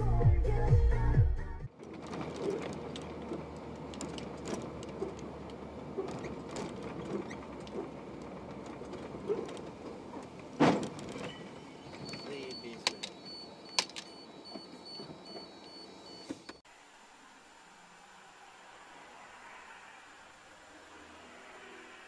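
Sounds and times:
background music: 0:00.0 - 0:01.7
road noise inside vehicle: 0:00.0 - 0:22.0
small rattles and clicks: 0:01.7 - 0:11.3.

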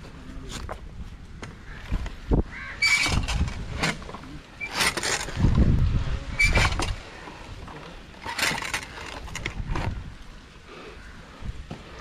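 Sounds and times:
wind buffeting microphone: 0:00.6 - 0:04.1, 0:05.2 - 0:07.7, 0:09.2 - 0:10.6
short squeaks: 0:02.8 - 0:04.0, 0:04.6 - 0:05.4, 0:06.4 - 0:07.0
climbing gear scraping on trunk: 0:02.8 - 0:09.9.

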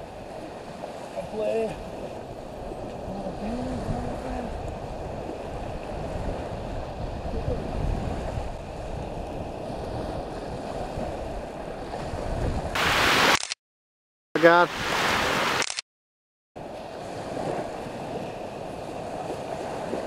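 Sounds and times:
wind buffeting microphone: 0:00.0 - 0:13.0
surf washing onto beach: 0:00.0 - 0:13.4, 0:14.4 - 0:15.6, 0:16.6 - 0:20.0.

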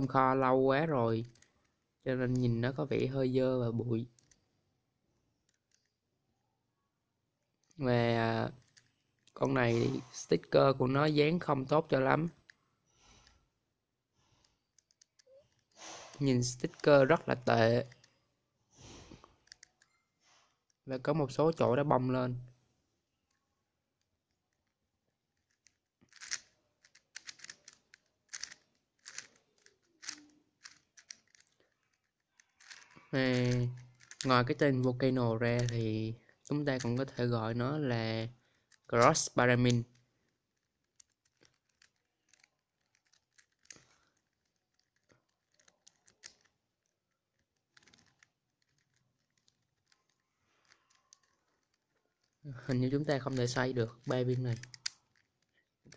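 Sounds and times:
plastic puzzle pieces clacking: 0:01.2 - 0:02.9, 0:04.0 - 0:04.5, 0:05.3 - 0:06.0, 0:08.5 - 0:10.3, 0:14.4 - 0:18.2, 0:19.0 - 0:20.8, 0:23.2 - 0:55.9.

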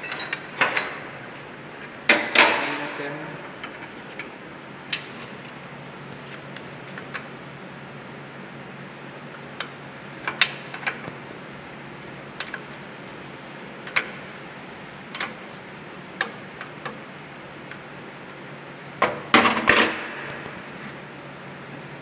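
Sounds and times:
spanner clinking on nut: 0:00.0 - 0:01.0
steady low hum: 0:00.0 - 0:22.0.

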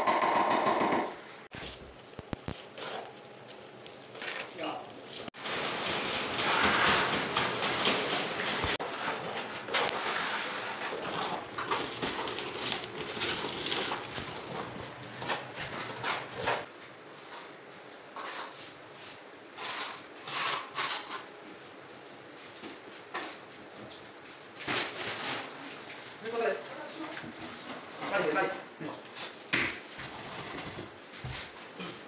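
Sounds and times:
scattered scrapes and knocks: 0:05.3 - 0:16.7, 0:17.3 - 0:18.8.

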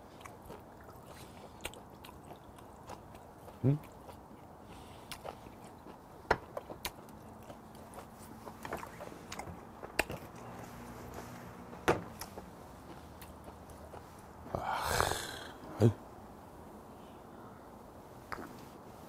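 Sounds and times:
breathy rush of noise: 0:14.4 - 0:19.0.

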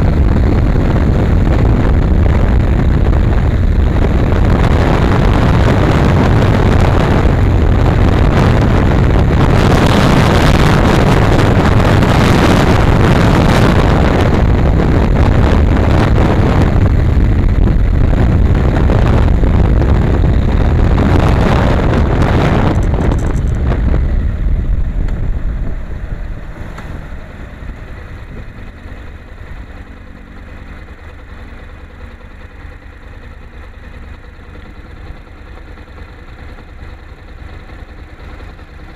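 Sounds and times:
wind rush on microphone: 0:00.0 - 0:30.0
motorcycle engine: 0:00.0 - 0:38.9
motorcycle engine idling: 0:14.0 - 0:38.9.

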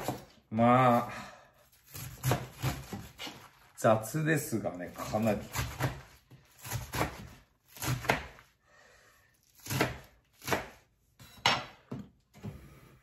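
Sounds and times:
knife chopping cabbage on board: 0:00.0 - 0:00.4, 0:01.8 - 0:03.5, 0:04.9 - 0:08.5, 0:09.5 - 0:10.9.

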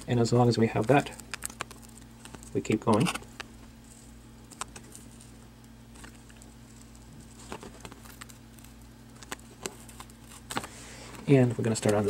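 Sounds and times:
steady low hum: 0:00.0 - 0:12.0
tape peeling: 0:00.8 - 0:03.5.

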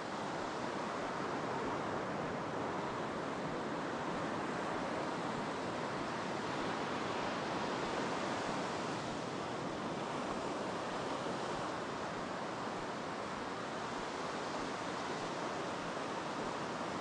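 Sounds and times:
ocean surf breaking on beach: 0:00.0 - 0:17.0.

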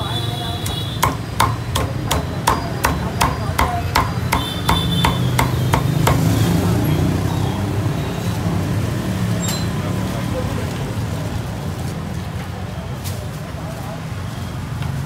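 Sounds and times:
cleaver chopping on wooden block: 0:00.6 - 0:06.4.

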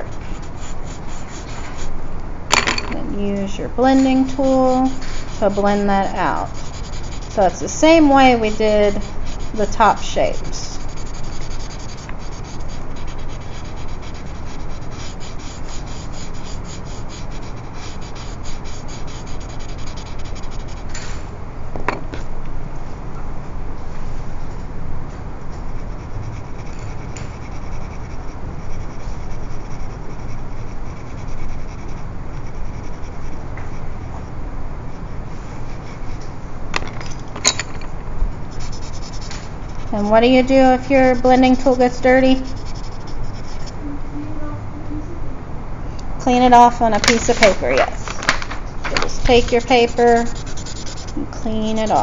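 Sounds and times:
blending stump rubbing on paper: 0:00.0 - 0:01.9, 0:03.3 - 0:20.9, 0:38.5 - 0:43.8, 0:46.9 - 0:52.0.

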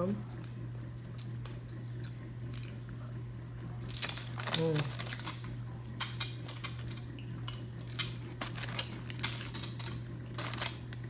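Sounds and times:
steady low hum: 0:00.0 - 0:11.0
foil rustling: 0:03.8 - 0:05.5, 0:08.3 - 0:11.0.

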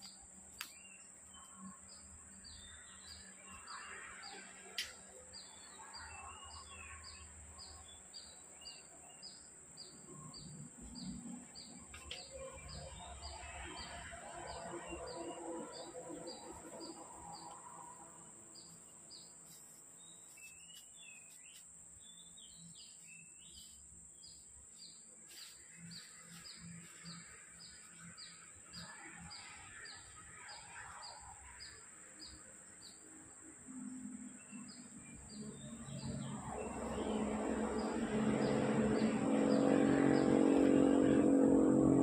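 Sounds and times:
engine: 0:35.2 - 0:42.0.

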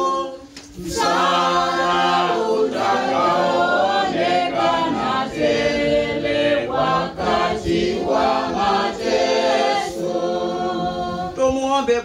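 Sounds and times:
group chanting unaccompanied: 0:00.8 - 0:11.4.

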